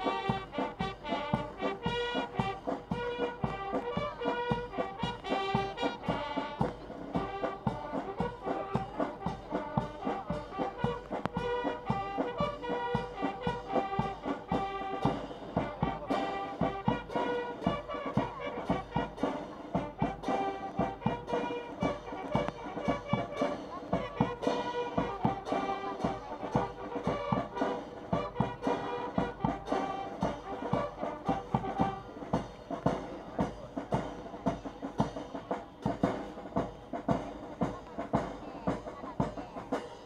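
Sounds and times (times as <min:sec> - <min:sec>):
bugles playing a march: 0:00.0 - 0:40.0.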